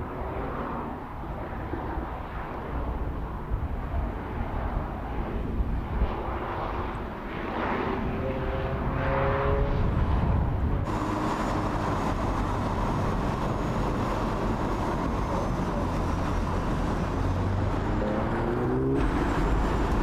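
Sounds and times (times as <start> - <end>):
tyre and road noise: 0.0 - 20.0
car engine accelerating: 10.9 - 20.0.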